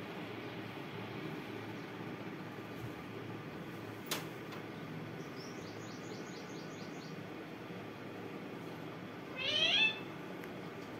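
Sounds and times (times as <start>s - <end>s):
sharp click: 4.1s - 4.6s
parakeet chirping: 9.3s - 10.1s.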